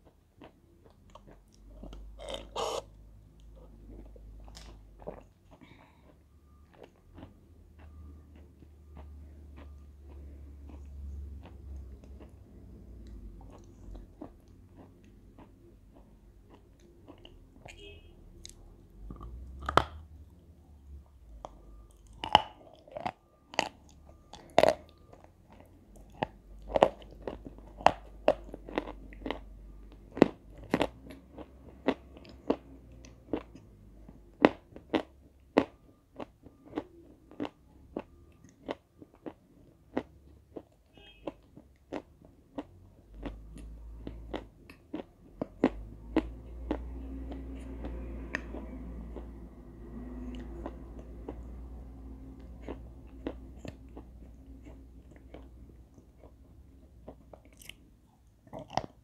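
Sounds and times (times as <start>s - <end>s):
low background rumble: 0.0s - 59.0s
chalk crunching while chewing: 52.3s - 56.4s.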